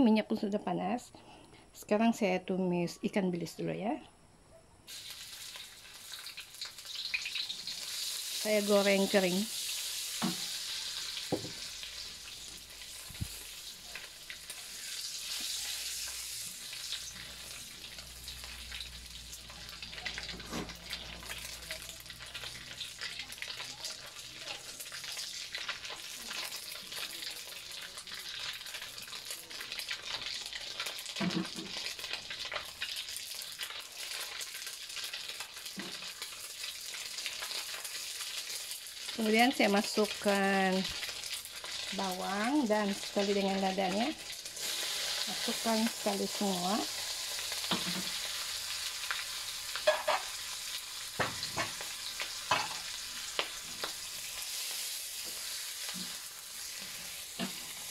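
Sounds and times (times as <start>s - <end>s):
fish sizzling in hot oil: 4.9s - 57.9s.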